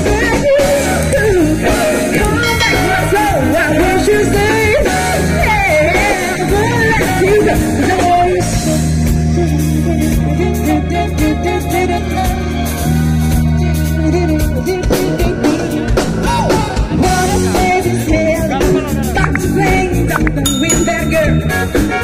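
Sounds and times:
woman singing: 0:00.0 - 0:12.4
live band playing: 0:00.0 - 0:22.0.

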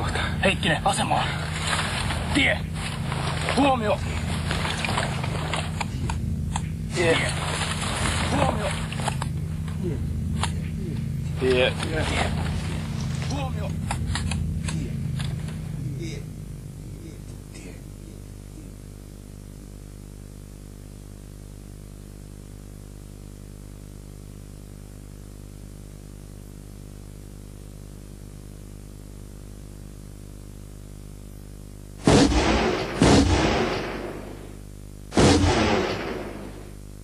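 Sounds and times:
steady low hum: 0:00.0 - 0:37.0
rifle shots with echo: 0:32.0 - 0:36.8.

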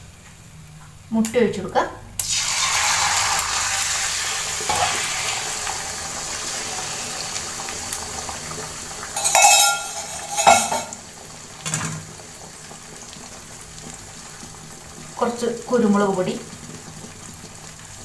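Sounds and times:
eggs sizzling in hot oil: 0:00.0 - 0:18.0
metallic clanks: 0:09.2 - 0:11.0.

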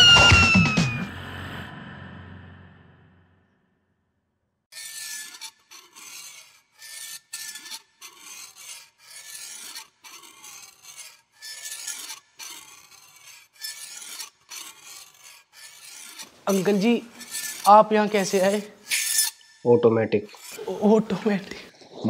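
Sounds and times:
rasping scratchy noise: 0:04.7 - 0:22.0.

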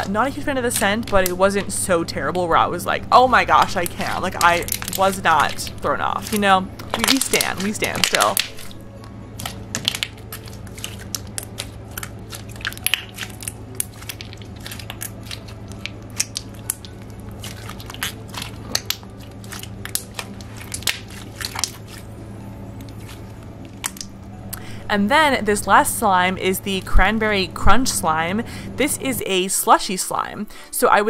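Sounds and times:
steady low hum: 0:00.0 - 0:31.0
slime popping and clicking: 0:10.9 - 0:17.0, 0:17.9 - 0:21.8.

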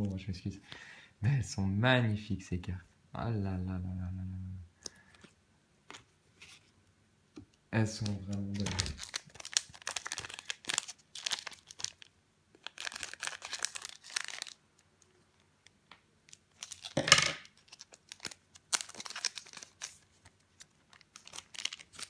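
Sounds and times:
foil wrapper crinkling: 0:07.8 - 0:15.7, 0:16.3 - 0:22.0.

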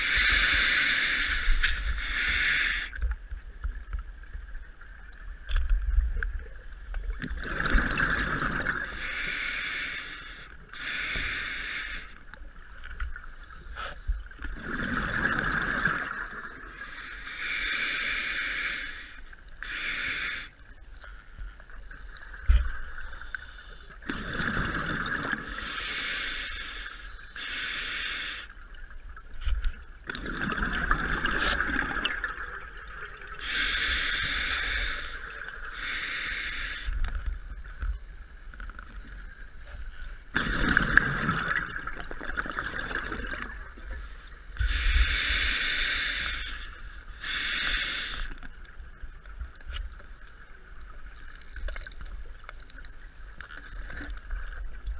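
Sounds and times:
hissing regulator inhale: 0:00.0 - 0:03.0, 0:08.8 - 0:12.3, 0:16.7 - 0:20.6, 0:25.5 - 0:28.6, 0:33.4 - 0:37.3, 0:43.9 - 0:48.6
gurgling exhaled bubbles: 0:07.2 - 0:09.0, 0:14.5 - 0:16.8, 0:24.0 - 0:25.7, 0:30.1 - 0:33.4, 0:40.3 - 0:43.9.

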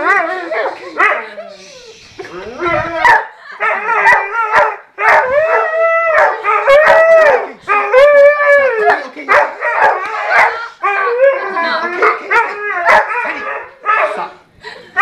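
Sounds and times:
husky howling: 0:02.5 - 0:09.0.

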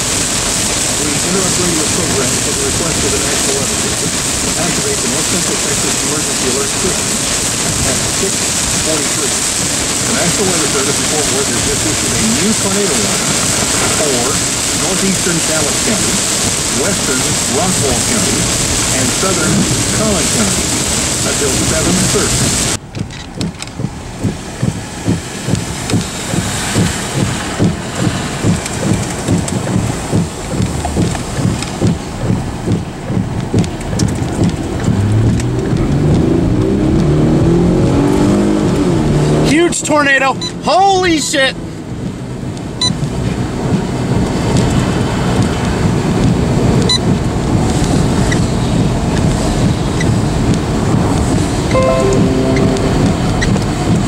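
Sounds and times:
rain hiss: 0:00.0 - 0:22.8, 0:23.4 - 0:54.0
low thumps: 0:22.5 - 0:36.3.

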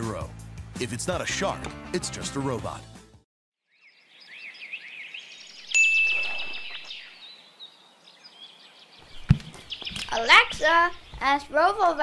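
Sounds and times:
small birds chirping: 0:03.6 - 0:12.0
clear ringing tone: 0:05.8 - 0:06.9.

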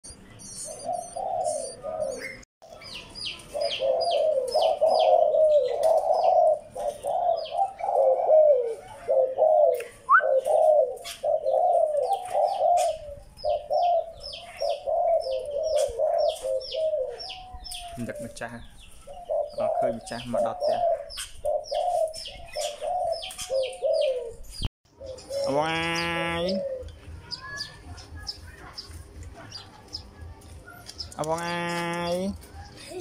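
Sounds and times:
small birds chirping: 0:00.0 - 0:33.0
dove cooing: 0:00.1 - 0:31.0, 0:32.0 - 0:33.0.

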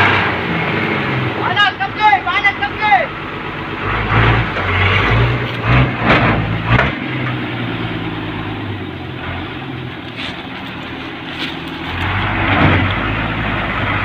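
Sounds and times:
truck engine running: 0:00.0 - 0:14.0.

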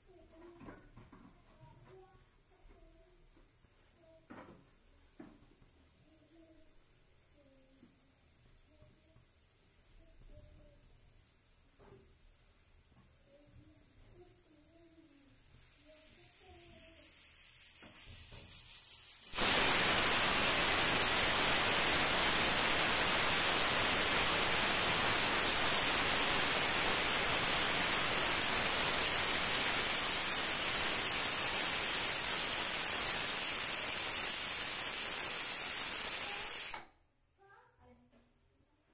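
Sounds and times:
pressure cooker valve hissing: 0:19.0 - 0:36.9.

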